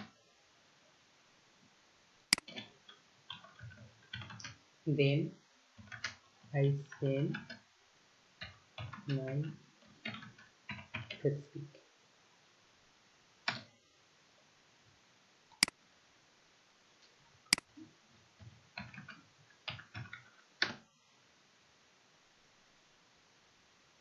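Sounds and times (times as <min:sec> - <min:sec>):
keyboard and mouse clicks: 0:02.3 - 0:04.6, 0:05.8 - 0:07.6, 0:08.4 - 0:11.8, 0:13.4 - 0:13.7, 0:17.5 - 0:17.8, 0:18.4 - 0:20.9.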